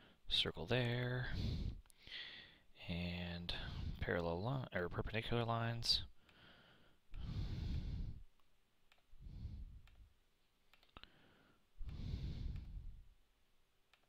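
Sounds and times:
computer mouse clicks: 8.3 - 9.2, 9.8 - 10.1, 10.7 - 11.1, 11.8 - 12.8.

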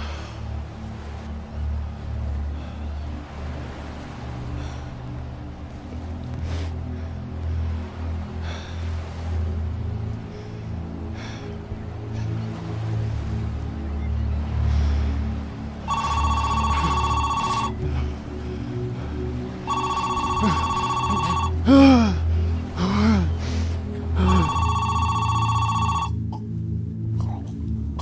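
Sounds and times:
low music drone: 0.0 - 28.0
telephone ringing: 15.9 - 17.8, 19.7 - 21.5, 24.3 - 26.2.

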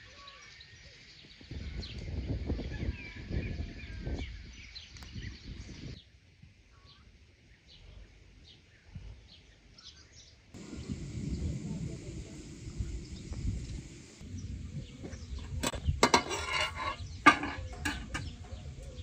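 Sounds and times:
small birds chirping: 6.7 - 19.0
low rumbling noise: 10.6 - 18.9.

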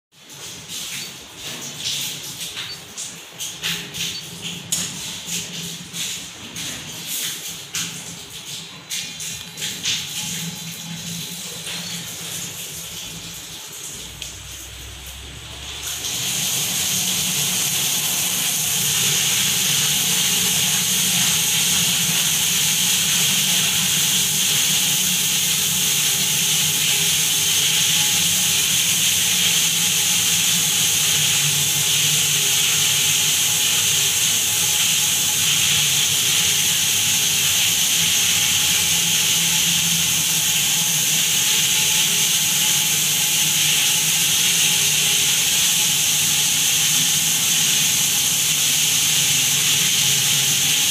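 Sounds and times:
water jet spraying: 0.3 - 50.9.

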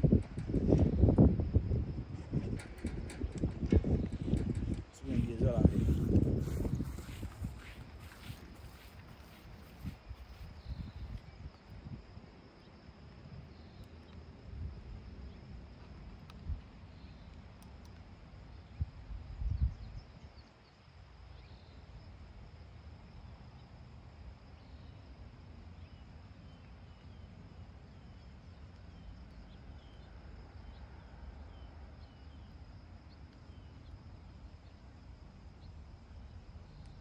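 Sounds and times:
wind rumble on microphone: 0.0 - 25.2
small bird chirping: 2.5 - 11.4
high insect buzz: 5.6 - 11.5.

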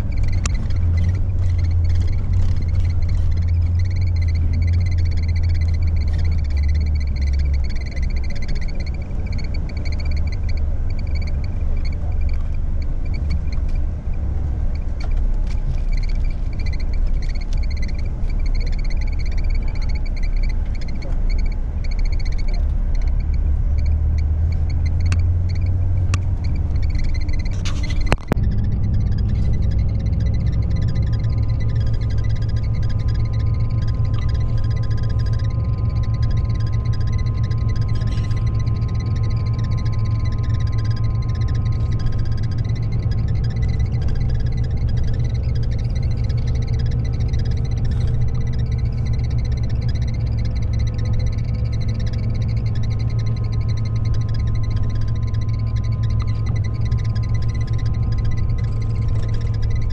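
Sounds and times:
bus engine and road rumble: 0.0 - 59.9
faint high whine: 0.0 - 59.9
faint steady tones: 0.0 - 59.9.

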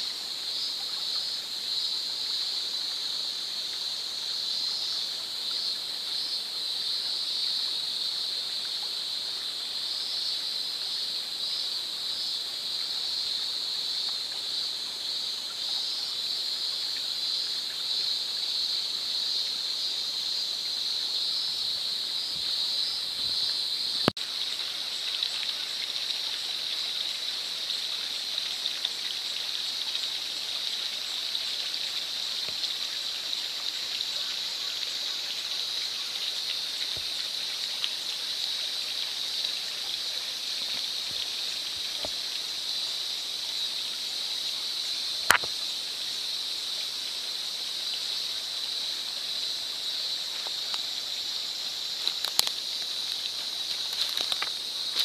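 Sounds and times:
stream trickling: 0.0 - 55.0
sharp click: 45.3 - 45.5.

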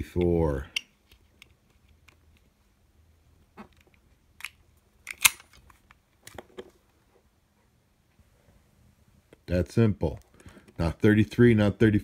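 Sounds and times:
padlock shackle clicks and clacks: 4.4 - 5.6.

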